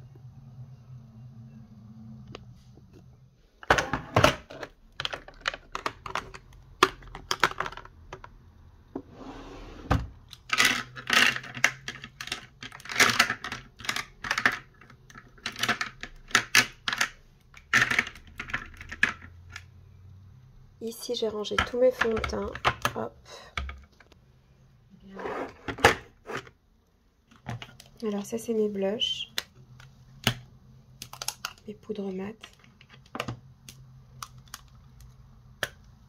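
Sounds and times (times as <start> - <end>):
plastic cases clicking and clattering: 3.6 - 8.4, 10.2 - 19.7, 29.4 - 31.7.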